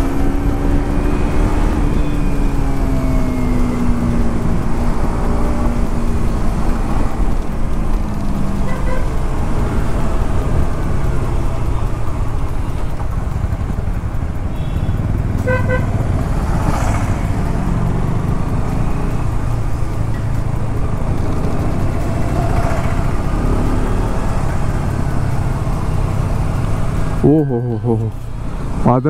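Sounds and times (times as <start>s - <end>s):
motorcycle engine and wind rumble: 0.0s - 27.5s
vehicle horn beeping: 8.6s - 9.2s, 14.5s - 16.0s.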